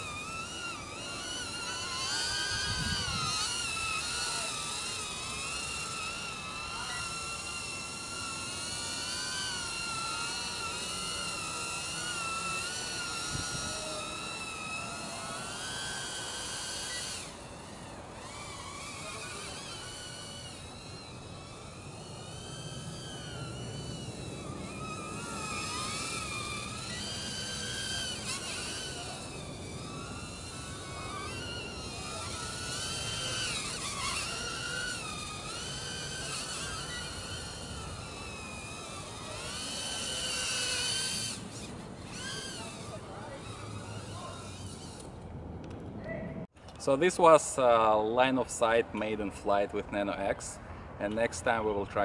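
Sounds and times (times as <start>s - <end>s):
quadcopter motors whining: 0.0s - 52.0s.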